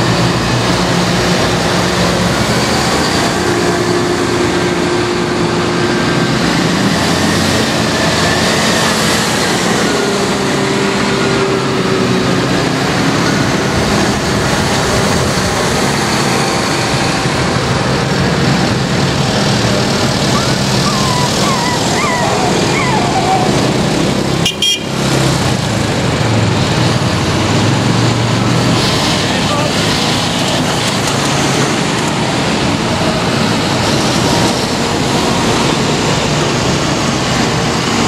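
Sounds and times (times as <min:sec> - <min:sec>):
tractor diesel engines droning: 0:00.0 - 0:38.0
wavering high-pitched tones: 0:20.3 - 0:23.6.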